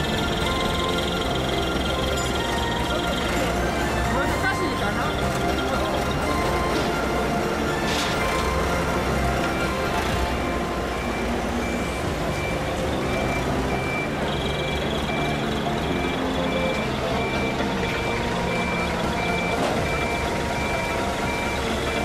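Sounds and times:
reverse alarm beeping: 0:00.0 - 0:22.0.

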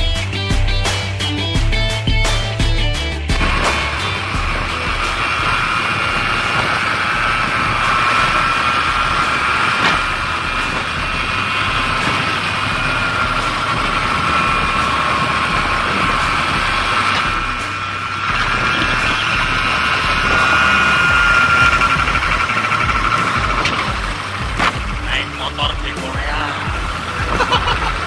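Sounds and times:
motorbike engine running: 0:00.0 - 0:28.0
wind buffeting microphone: 0:03.3 - 0:25.1.

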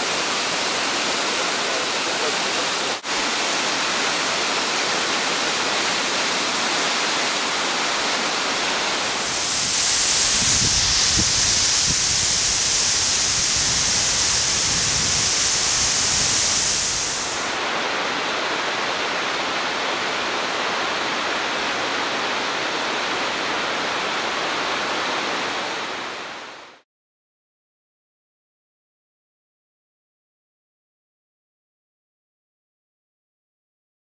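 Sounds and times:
waterfall rushing: 0:00.0 - 0:26.6.

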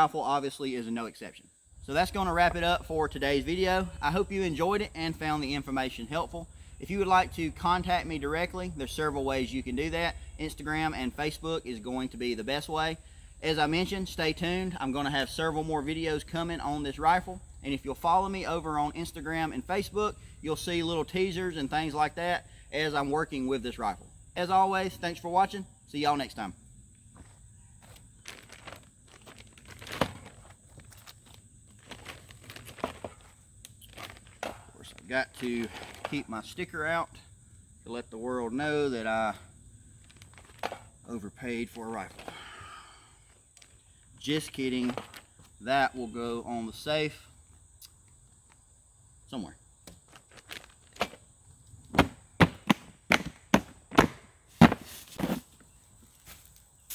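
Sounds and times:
plastic bags rustling: 0:28.2 - 0:36.2.

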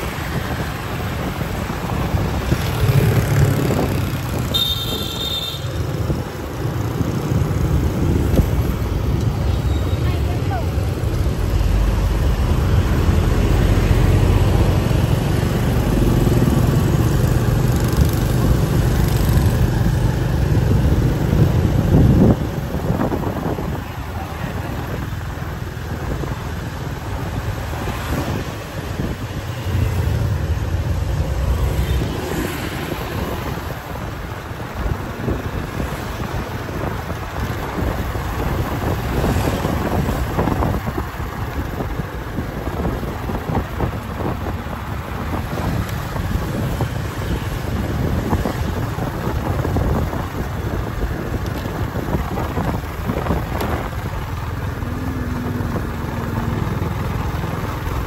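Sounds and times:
heavy low traffic rumble: 0:00.0 - 0:58.0
motorbikes and cars passing: 0:00.0 - 0:58.0.

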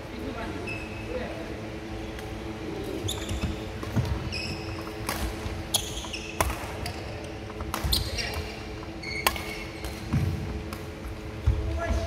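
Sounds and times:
sneakers squeaking on wooden floor: 0:03.0 - 0:05.0, 0:05.6 - 0:07.2, 0:07.8 - 0:10.4
rackets smacking shuttlecock: 0:04.8 - 0:11.0.

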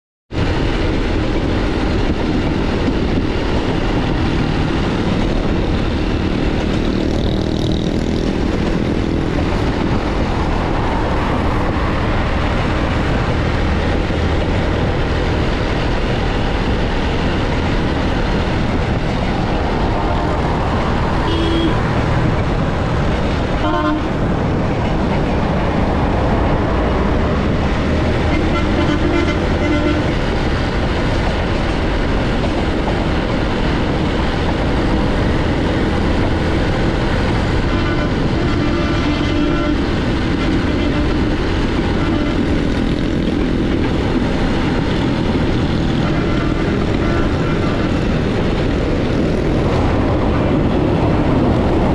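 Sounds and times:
motorbike engine and wind: 0:00.4 - 0:51.9
horn toots: 0:21.2 - 0:21.8, 0:23.6 - 0:24.2, 0:28.2 - 0:30.2, 0:37.6 - 0:41.3, 0:45.9 - 0:47.9.

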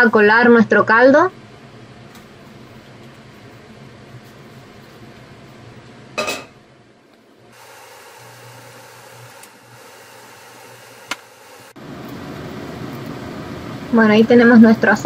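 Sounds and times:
steady low hum: 0:00.0 - 0:15.0
metal clank against sink: 0:06.2 - 0:06.6.

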